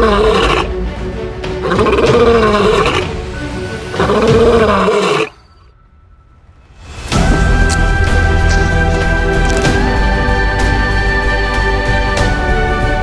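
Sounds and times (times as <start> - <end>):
lion roaring: 0.0 - 0.8, 1.6 - 3.2, 3.9 - 5.4
background music: 0.0 - 13.0.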